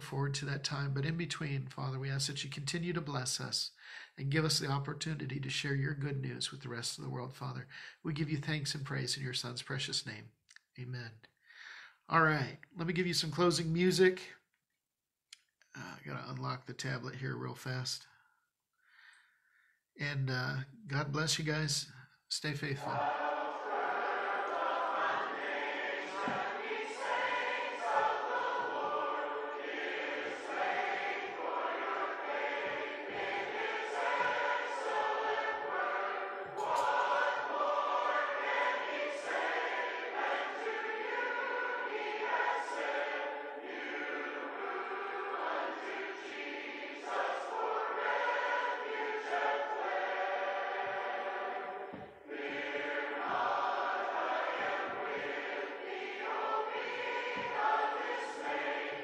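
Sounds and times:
recorded choir singing: 0:22.5 - 0:59.0.

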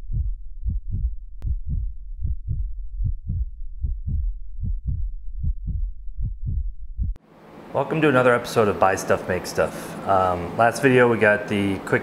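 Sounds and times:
deep pulsing thumps: 0:00.0 - 0:07.2.

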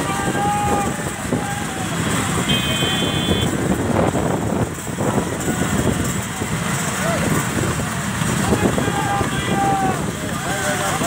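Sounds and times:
road traffic: 0:00.0 - 0:11.0
vehicle horn: 0:02.4 - 0:03.6.

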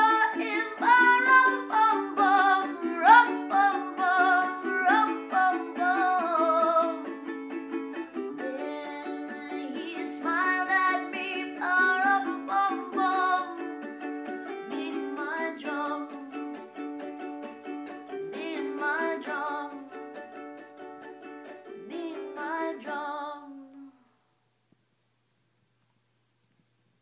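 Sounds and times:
woman singing: 0:00.0 - 0:07.2, 0:08.3 - 0:16.7, 0:18.2 - 0:20.1, 0:21.7 - 0:24.1
strummed ukulele: 0:00.0 - 0:23.5.

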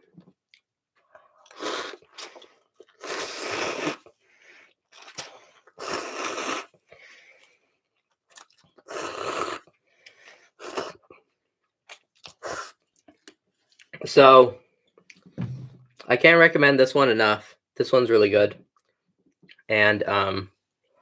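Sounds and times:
person slurping noodles: 0:01.2 - 0:04.2, 0:05.7 - 0:06.8, 0:08.8 - 0:09.7, 0:10.6 - 0:11.1
faint chewing: 0:09.7 - 0:14.0.

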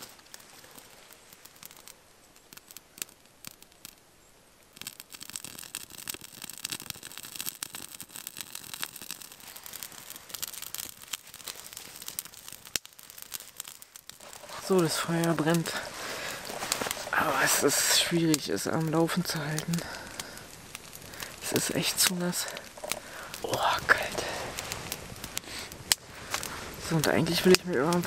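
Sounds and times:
twig fire crackling: 0:00.0 - 0:28.0.

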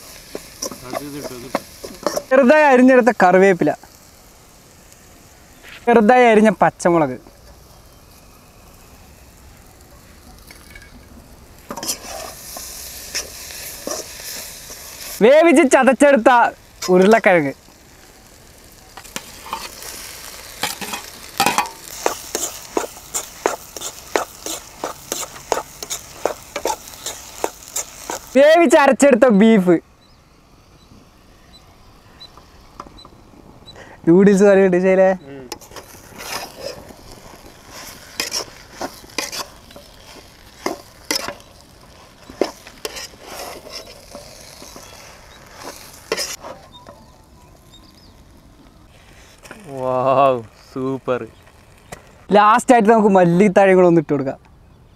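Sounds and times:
spatula scraping frying pan: 0:00.0 - 0:02.3, 0:11.6 - 0:15.2, 0:19.0 - 0:28.4, 0:35.5 - 0:47.0
food sizzling in oil: 0:00.0 - 0:53.2.

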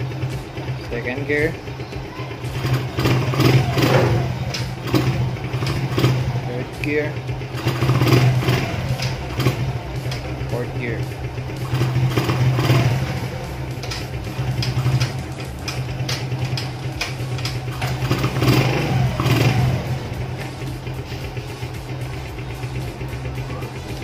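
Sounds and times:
background music with beat: 0:00.0 - 0:24.0
motorcycle engine idling: 0:00.0 - 0:24.0.

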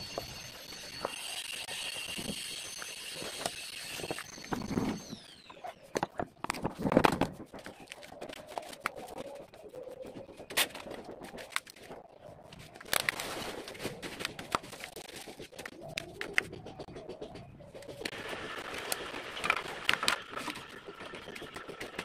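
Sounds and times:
dove cooing: 0:07.5 - 0:12.5, 0:14.8 - 0:18.7.

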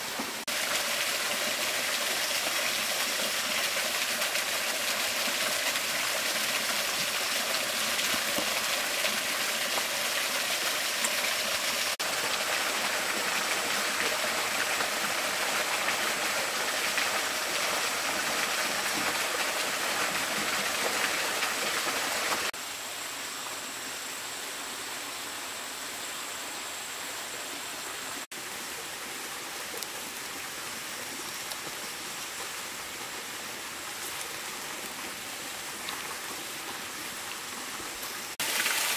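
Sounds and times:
stream and waterfall rushing: 0:00.0 - 0:38.9.

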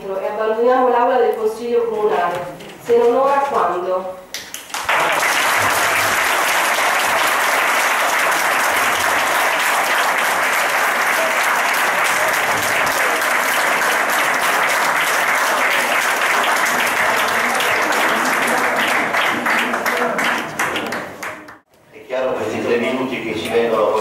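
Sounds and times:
audience applauding: 0:04.4 - 0:21.6.

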